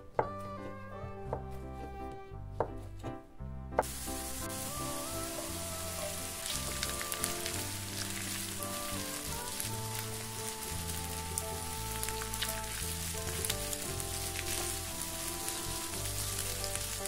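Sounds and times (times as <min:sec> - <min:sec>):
background music with bass: 0:00.0 - 0:17.0
food sizzling in frying pan: 0:03.8 - 0:17.0.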